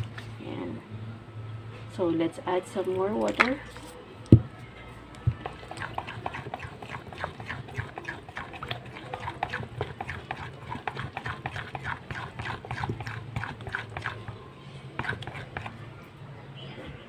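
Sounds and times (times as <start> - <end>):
spoon beating batter in bowl: 5.3 - 14.4, 15.0 - 15.8.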